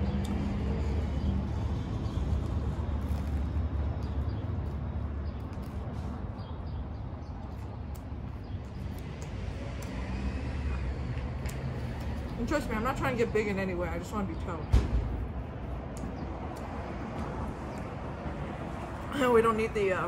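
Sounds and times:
chewing a sandwich: 0.0s - 12.4s
low rumble of street traffic: 0.0s - 20.0s.

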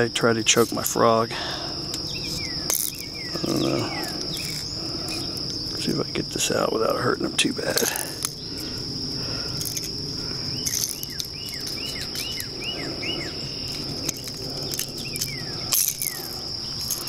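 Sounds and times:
insects droning: 0.0s - 17.0s
bird whistling: 10.6s - 13.5s.

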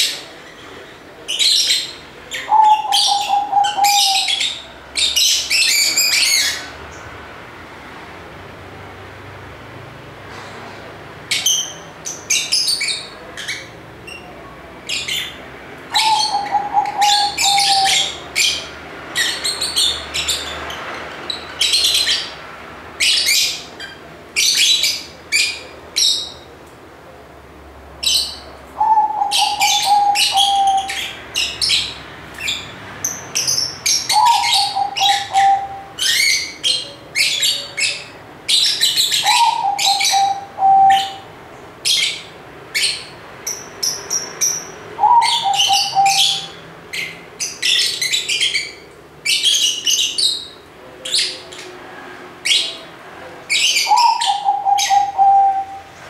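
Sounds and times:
lovebirds chirping: 0.0s - 7.2s, 11.3s - 26.6s, 28.0s - 51.8s, 53.5s - 56.0s
lower trilled bird call: 34.1s - 36.5s, 44.5s - 46.6s, 53.8s - 56.0s.

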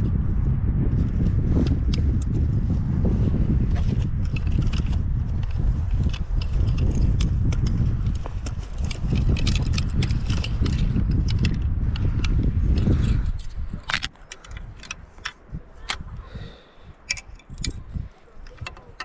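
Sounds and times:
wind buffeting microphone: 0.0s - 19.0s
small sharp clicks and rattles: 4.0s - 16.0s, 17.1s - 19.0s.

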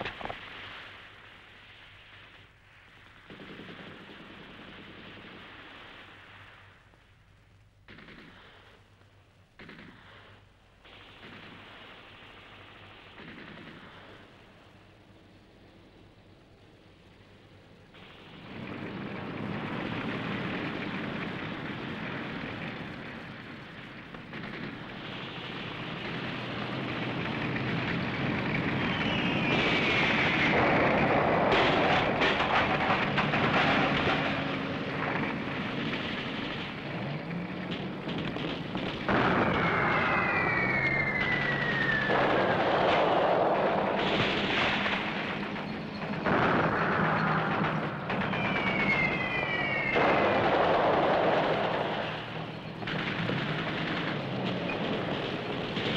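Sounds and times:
tank engines running: 0.0s - 55.9s
explosions and gunfire: 3.2s - 6.2s, 7.8s - 8.9s, 9.5s - 14.9s, 18.0s - 55.9s
tank tracks clattering: 26.4s - 39.2s
high falling whistle: 39.3s - 43.1s, 48.2s - 50.5s.

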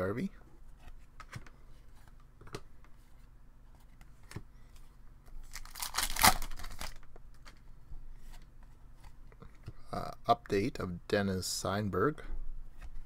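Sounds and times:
wrapper tearing: 5.5s - 7.0s.

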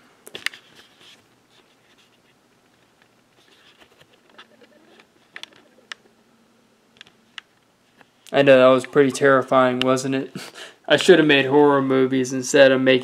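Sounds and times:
rustling at microphone: 0.3s - 6.0s.

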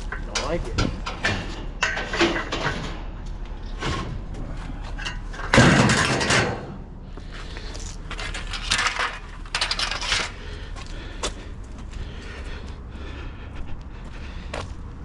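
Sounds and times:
scrap metal clattering: 0.0s - 6.8s, 7.6s - 10.7s.

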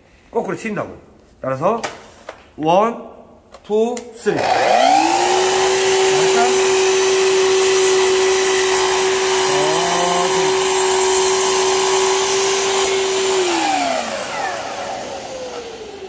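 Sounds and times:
dust extractor suction: 4.4s - 16.0s
miter saw cutting wood: 4.4s - 16.0s.

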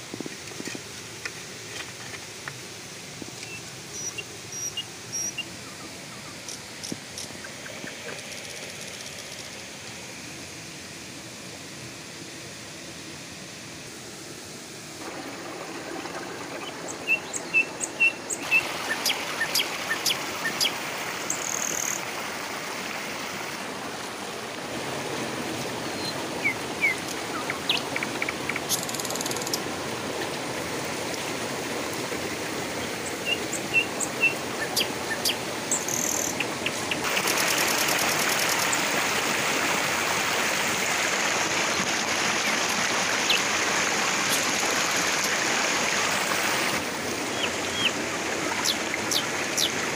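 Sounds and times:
stream rushing over rocks: 0.0s - 49.9s.

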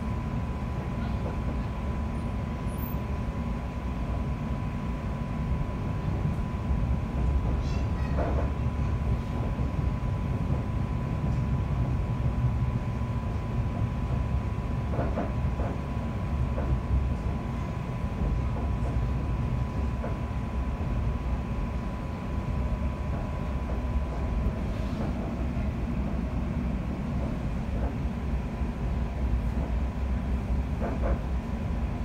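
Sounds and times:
train wheels rumbling on track: 0.0s - 32.0s.

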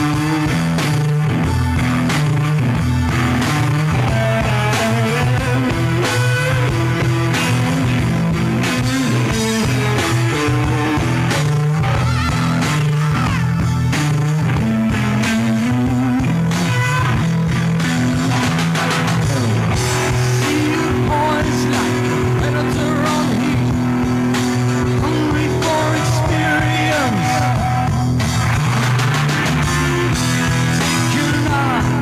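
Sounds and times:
drum kit: 0.0s - 32.0s
electric guitar: 0.0s - 32.0s
person singing: 19.8s - 28.2s, 30.6s - 32.0s.

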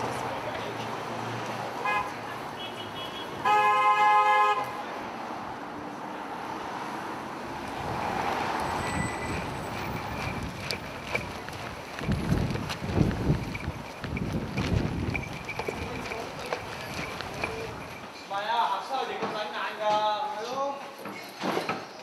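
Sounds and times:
city street traffic: 0.0s - 22.0s
car horn honking: 1.8s - 4.8s.

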